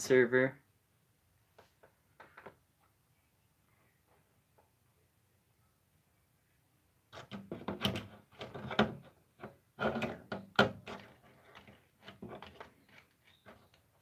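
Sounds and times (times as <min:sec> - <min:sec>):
hard objects knocking and clattering: 0:07.2 - 0:13.7.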